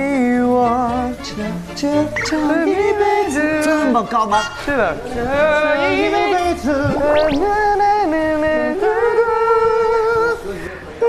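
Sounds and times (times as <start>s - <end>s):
music of held steady notes: 0.0s - 6.8s
quick upward swoops: 6.8s - 8.2s.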